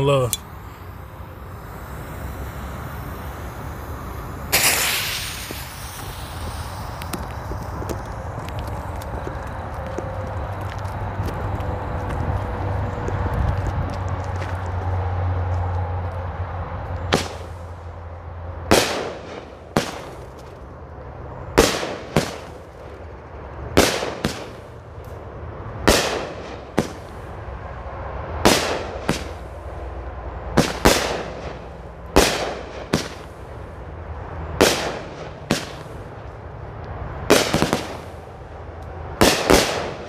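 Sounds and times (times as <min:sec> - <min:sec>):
firework bangs and pops: 0:03.2 - 0:09.6, 0:17.1 - 0:17.6, 0:18.7 - 0:20.6, 0:21.6 - 0:23.0, 0:23.7 - 0:25.2, 0:25.8 - 0:27.3, 0:28.4 - 0:29.6, 0:30.5 - 0:33.6, 0:34.6 - 0:36.3, 0:37.3 - 0:38.2, 0:39.2 - 0:40.0.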